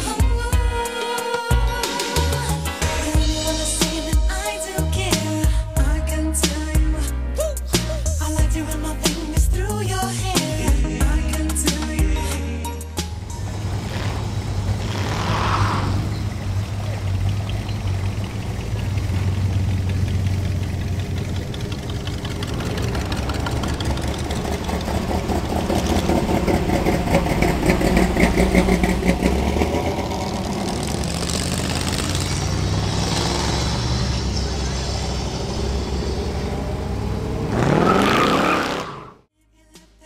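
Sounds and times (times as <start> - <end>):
cars idling past: 13.1 - 39.1.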